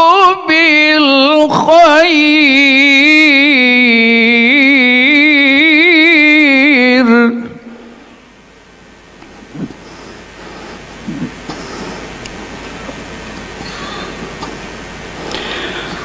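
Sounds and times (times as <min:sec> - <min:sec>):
man chanting into microphone: 0:00.0 - 0:07.8.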